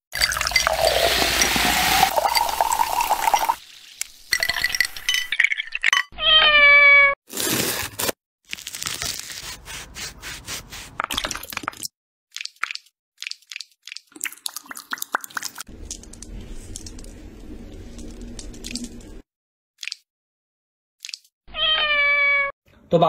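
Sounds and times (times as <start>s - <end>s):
soda pouring into glass of ice: 0.1s - 5.9s
cat meowing: 6.2s - 7.2s, 21.5s - 22.5s.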